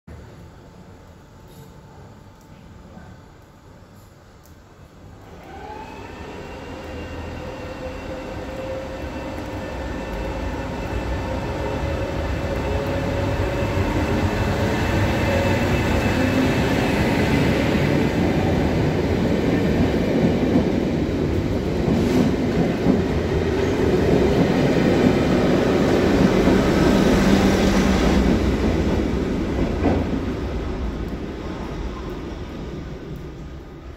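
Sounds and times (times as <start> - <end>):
locomotive whine: 5.2 - 19.9
train wheels rumbling: 5.6 - 33.9.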